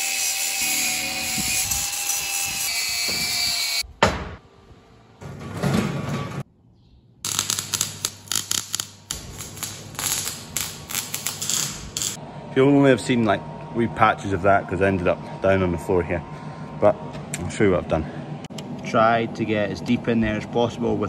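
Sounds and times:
angle grinder running: 0.0 - 3.8
welding arc crackling: 7.2 - 12.2.

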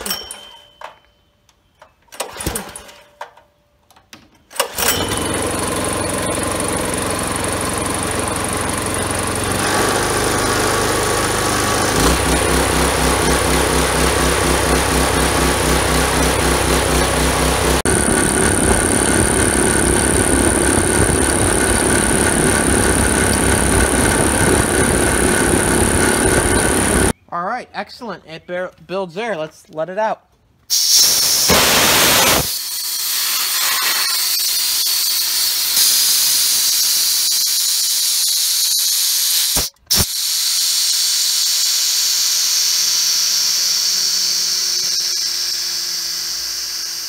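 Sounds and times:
air compressor pump: 4.6 - 27.1, 30.7 - 47.0
small gasoline engine running: 4.6 - 27.1, 30.8 - 47.0
steady high whine: 14.2 - 27.2.

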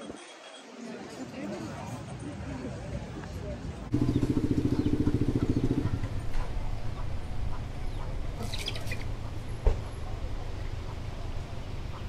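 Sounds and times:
bird chirps: 3.9 - 6.2, 7.0 - 9.5
vehicle engine running: 3.9 - 12.0.

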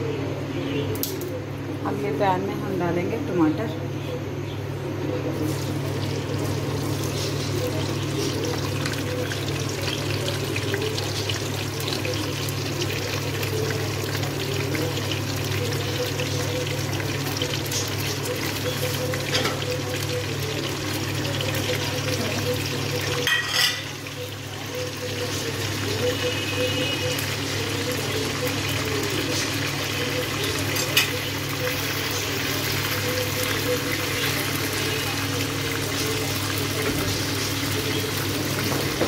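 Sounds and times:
tomatoes sizzling in hot oil: 5.3 - 39.0.

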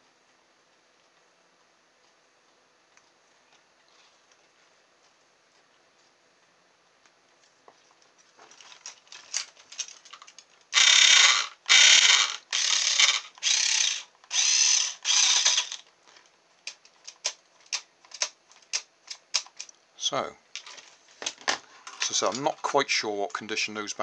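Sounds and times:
toy car motor and gears whirring: 9.4 - 15.9.

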